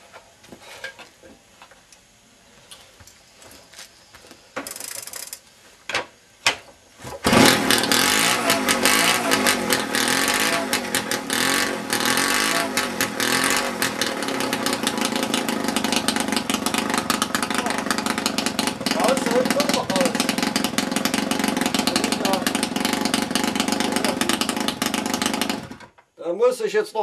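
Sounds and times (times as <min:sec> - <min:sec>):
moped engine starting and revving: 0:07.2 - 0:26.0
rattling crackling exhaust: 0:07.2 - 0:26.0.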